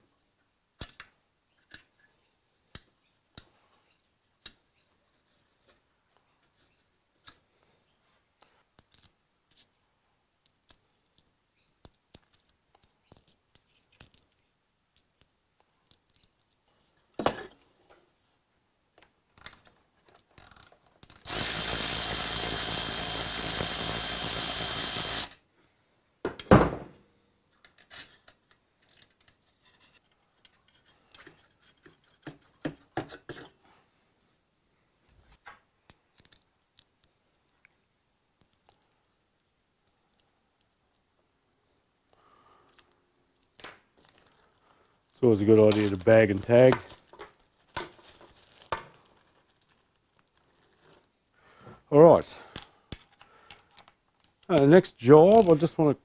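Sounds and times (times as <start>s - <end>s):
cordless ratchet running: 21.3s - 25.4s
tools clicking and clunking: 52.4s - 55.7s.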